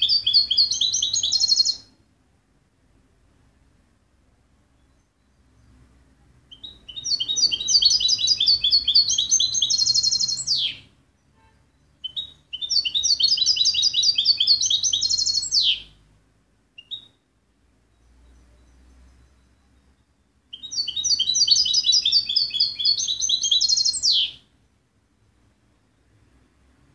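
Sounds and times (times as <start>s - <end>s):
goldfinch singing: 0.0s - 1.9s, 6.5s - 10.9s, 11.7s - 16.0s, 16.8s - 17.2s, 17.9s - 24.5s
short bird chirps: 0.0s - 1.9s, 6.5s - 16.0s, 16.8s - 17.2s, 17.9s - 24.7s.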